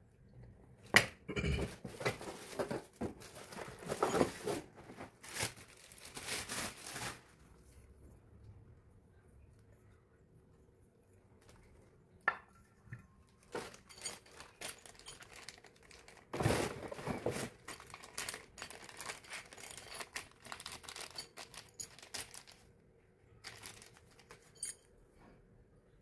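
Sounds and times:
plastic packaging crinkling: 1.8 - 7.6, 13.3 - 22.7, 23.4 - 24.8.

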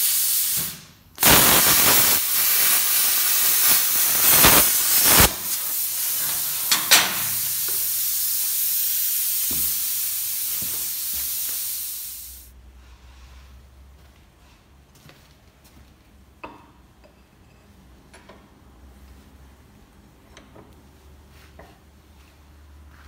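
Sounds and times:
plasma cutter crackling hiss: 0.0 - 12.5
torch air hissing: 0.0 - 12.5.

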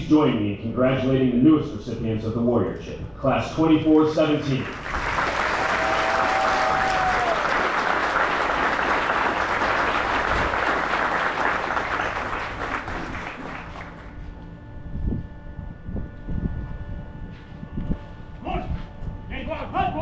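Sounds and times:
crowd applauding: 4.5 - 14.4.

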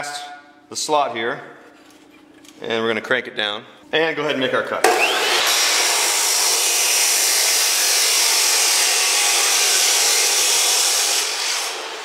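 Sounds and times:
chop saw grinding through steel: 4.9 - 12.0.

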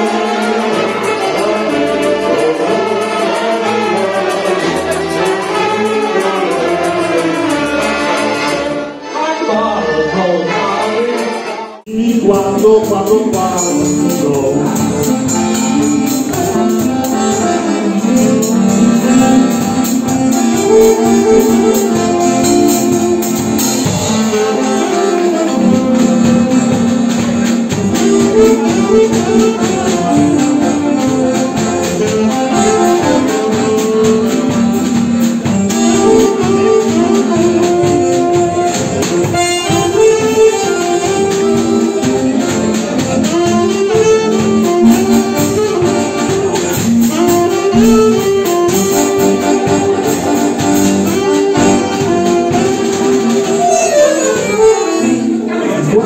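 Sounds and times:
accordion melody: 0.0 - 56.0
saxophone melody: 0.0 - 56.0
drum kit beat: 11.9 - 55.8.

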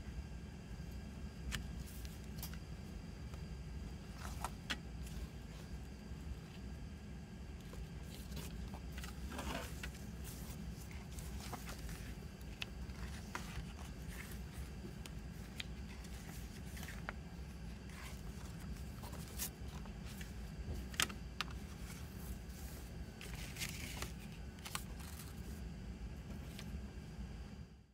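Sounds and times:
steady low hum: 0.0 - 27.9
paper rustling: 1.5 - 2.6, 4.0 - 6.7, 7.6 - 25.6.

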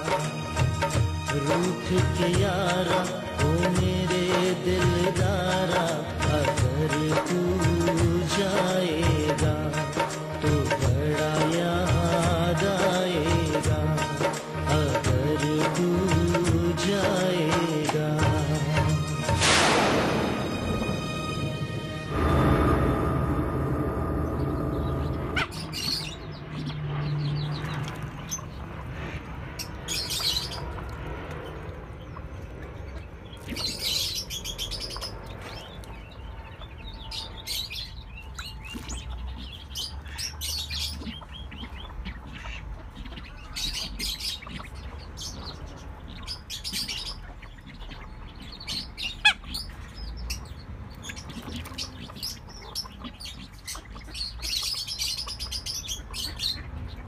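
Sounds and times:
low steady rumble: 19.4 - 37.5
ducks chirping and whistling: 24.0 - 57.0.

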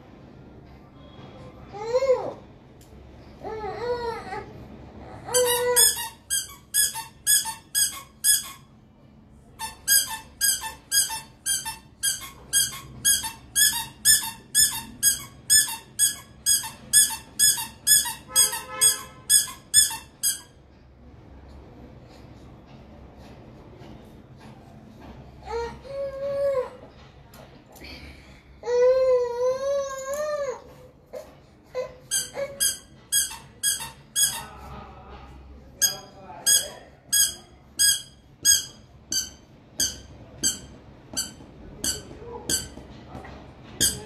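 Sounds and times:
short high-pitched squeaks: 32.1 - 34.6, 35.8 - 42.8, 43.8 - 44.0.

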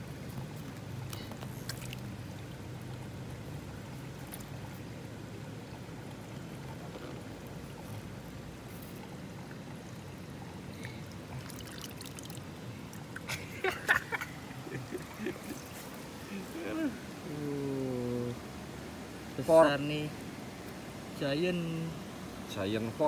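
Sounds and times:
stream water trickling: 0.0 - 23.0
faint clicks in water: 0.6 - 2.1.

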